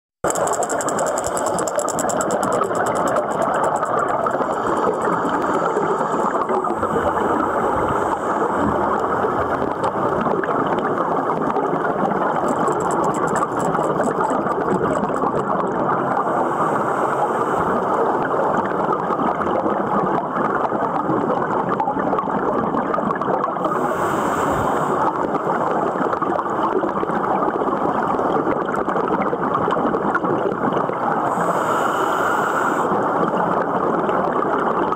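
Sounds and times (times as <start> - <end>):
regulator air bubbling: 0.2 - 16.4
underwater rush: 0.2 - 34.9.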